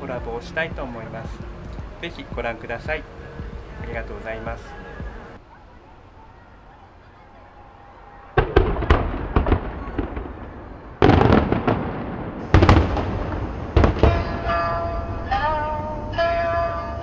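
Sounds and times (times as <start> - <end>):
fireworks bursting with sharp bangs: 8.2 - 14.7
shamisen plucking: 14.1 - 17.0.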